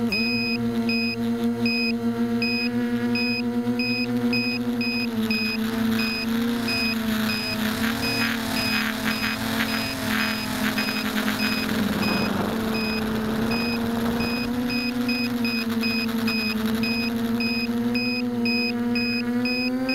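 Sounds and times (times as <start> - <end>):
electric motors and propellers whirring: 0.0 - 19.9
short high beeps: 0.1 - 19.7
rush of noise: 7.3 - 17.5.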